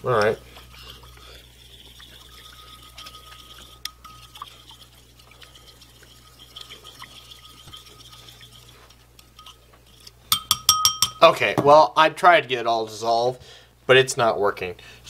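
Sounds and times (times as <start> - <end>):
spoon scraping glass bowl: 0.0 - 11.2
spoon clinking against glass: 2.0 - 8.0, 9.2 - 9.6, 10.3 - 11.2.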